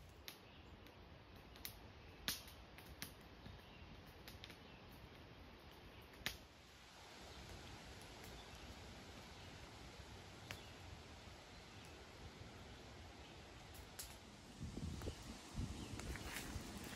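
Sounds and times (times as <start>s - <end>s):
faint woodland ambience: 0.0s - 16.9s.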